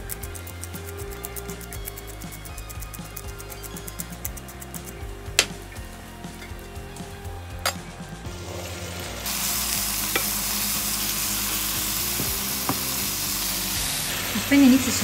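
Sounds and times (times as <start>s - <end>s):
metal pan lid clinking: 7.6s - 7.8s
vegetables sizzling in a frying pan: 8.2s - 15.0s.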